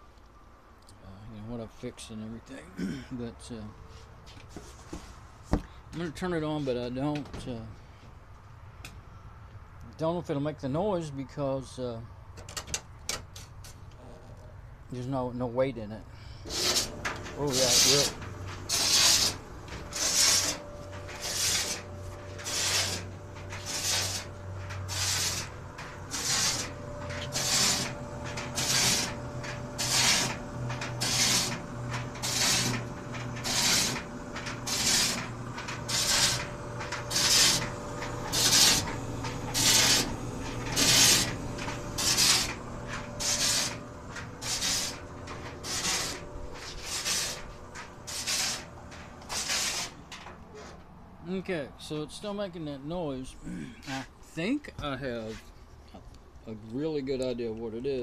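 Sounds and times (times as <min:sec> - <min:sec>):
clothes dryer motor humming: 0:16.4 - 0:50.4
dryer drum scraping rub: 0:16.4 - 0:50.9.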